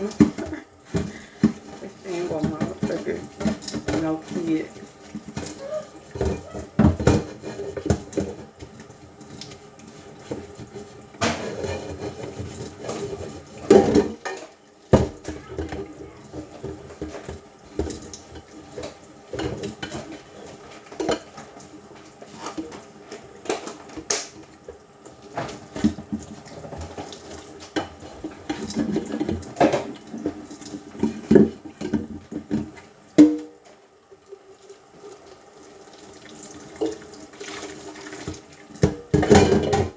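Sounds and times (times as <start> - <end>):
tap running: 0.0 - 33.4
dishes and utensils clinking: 10.2 - 21.6, 38.8 - 39.9.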